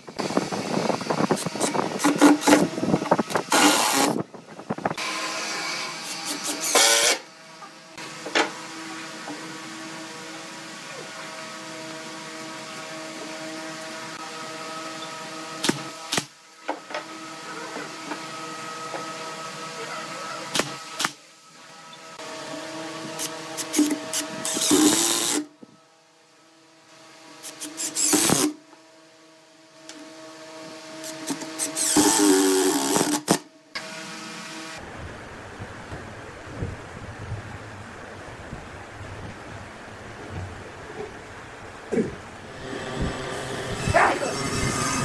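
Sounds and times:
cordless drill driving screws: 0:01.4 - 0:04.2, 0:05.0 - 0:07.3, 0:23.2 - 0:25.5, 0:27.4 - 0:28.6, 0:31.0 - 0:33.4
steady hum: 0:34.7 - 0:45.0.

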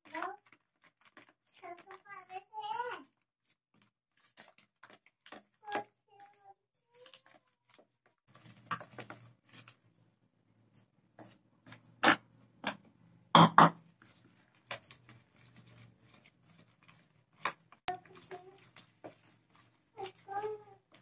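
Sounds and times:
plastic spoon scraping in bowl: 0:14.0 - 0:21.0.

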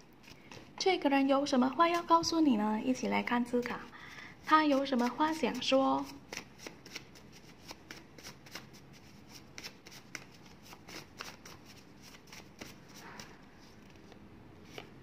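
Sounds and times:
cards being shuffled: 0:00.2 - 0:00.8, 0:04.7 - 0:15.0.

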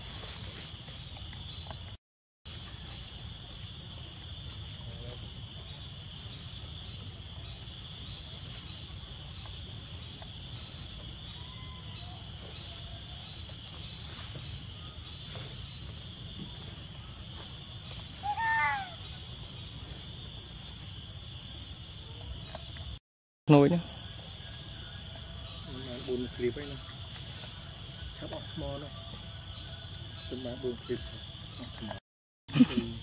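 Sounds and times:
insects buzzing: 0:00.0 - 0:33.0
animal call rising and falling: 0:18.2 - 0:19.0.

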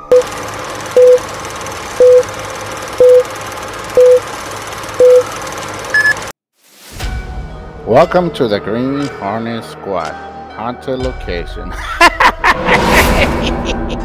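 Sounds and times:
electronic countdown beeps: 0:01.0 - 0:01.2, 0:02.0 - 0:02.3, 0:03.0 - 0:03.3, 0:04.0 - 0:04.2, 0:05.0 - 0:05.3, 0:05.9 - 0:06.3.

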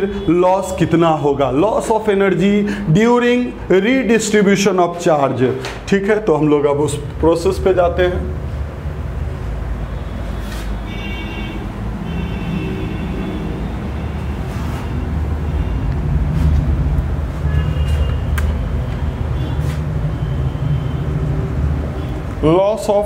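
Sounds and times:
duster wiping whiteboard: 0:10.4 - 0:10.8, 0:14.2 - 0:15.0
steady low rumble: 0:11.7 - 0:19.2.

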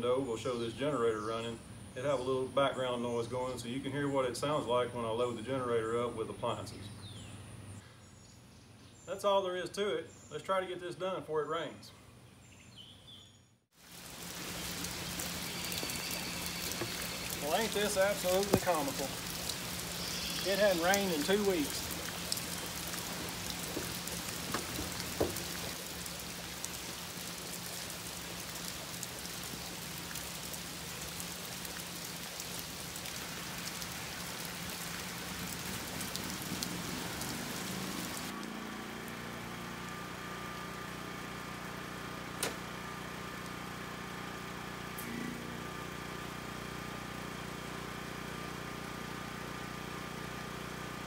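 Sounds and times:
rain falling: 0:13.8 - 0:44.6
generator humming: 0:13.9 - 0:51.0.

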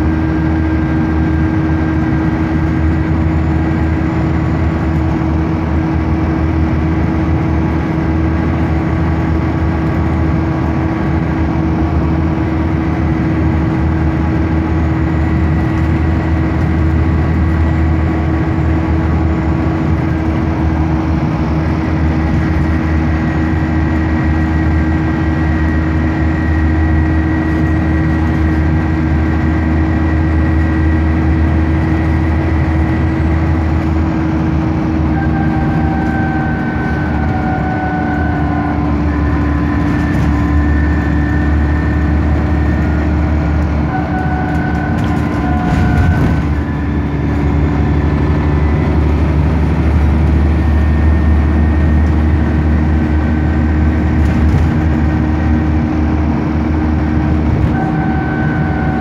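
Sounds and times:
bus diesel engine drone: 0:00.0 - 0:59.0.

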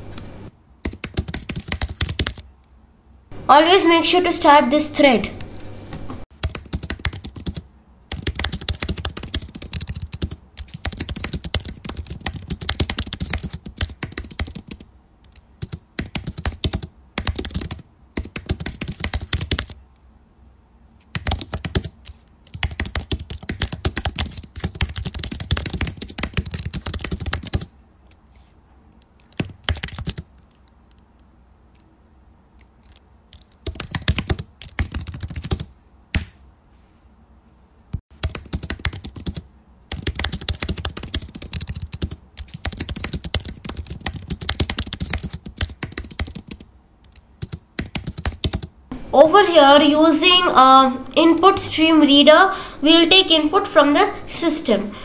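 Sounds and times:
computer keyboard typing: 0:00.2 - 0:02.5, 0:06.4 - 0:19.8, 0:21.1 - 0:28.2, 0:28.9 - 0:31.0, 0:32.6 - 0:36.3, 0:38.2 - 0:48.7.

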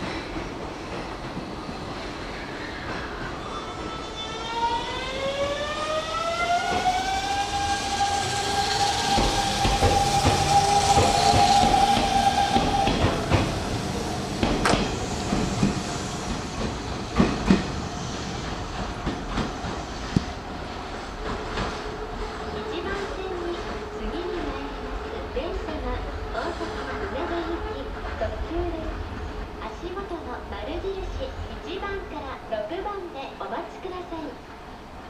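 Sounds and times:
train wheels clacking on rail joints: 0:09.0 - 0:13.6, 0:14.4 - 0:17.8, 0:18.4 - 0:20.4.

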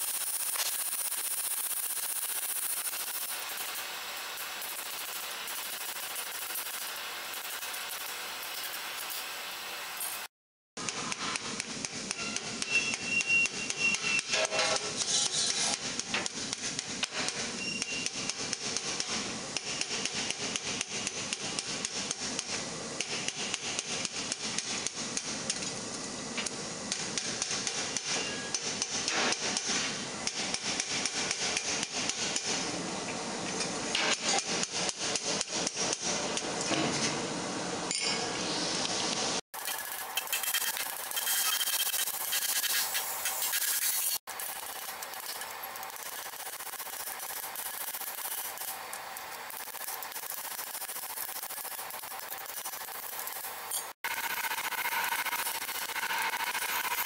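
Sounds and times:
hammer striking hot steel: 0:10.0 - 0:25.7, 0:26.4 - 0:32.8, 0:33.5 - 0:37.2, 0:37.9 - 0:38.5.

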